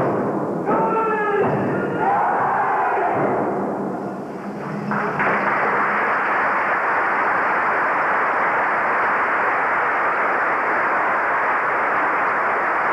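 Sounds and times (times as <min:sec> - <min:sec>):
videotape static hiss: 0:04.0 - 0:12.9.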